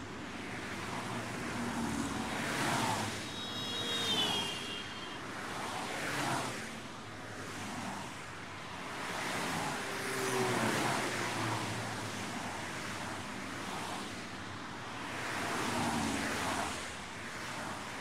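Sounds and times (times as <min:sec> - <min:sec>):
distant traffic: 0:00.0 - 0:13.9.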